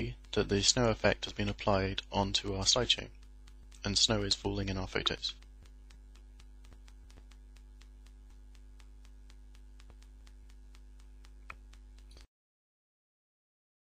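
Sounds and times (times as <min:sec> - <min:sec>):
faint regular ticking: 0:00.0 - 0:12.3
low electrical mains hum: 0:00.0 - 0:12.3
click: 0:05.0 - 0:12.3.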